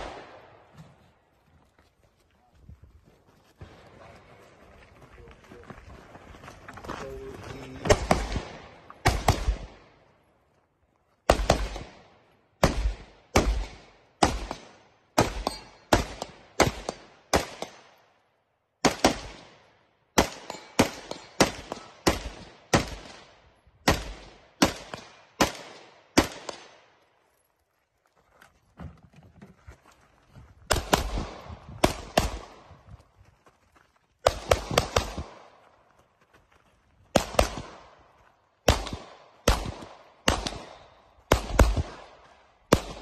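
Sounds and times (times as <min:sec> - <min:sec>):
rifle shots: 0:00.0 - 0:00.6, 0:07.9 - 0:09.9, 0:11.3 - 0:17.9, 0:18.8 - 0:19.6, 0:20.2 - 0:26.8, 0:30.7 - 0:32.7, 0:34.2 - 0:35.6, 0:37.1 - 0:38.0, 0:38.6 - 0:43.0.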